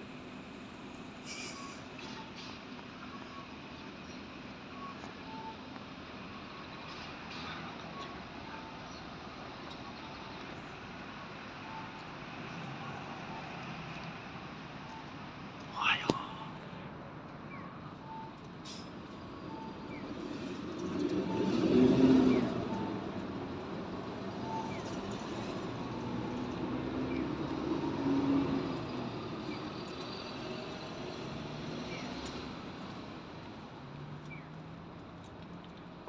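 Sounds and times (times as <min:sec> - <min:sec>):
motor vehicles passing: 0:19.7 - 0:36.0.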